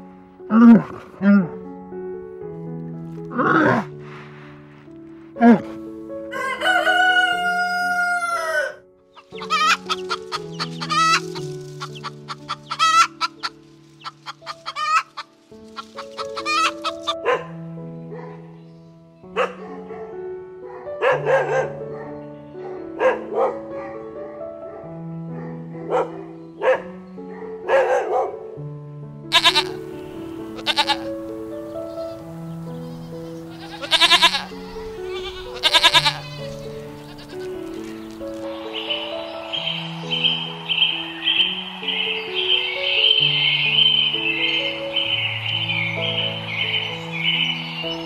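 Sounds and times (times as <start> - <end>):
background music slow notes: 0.0 - 48.0
rooster crowing: 6.3 - 8.8
chicken clucking: 9.2 - 17.2.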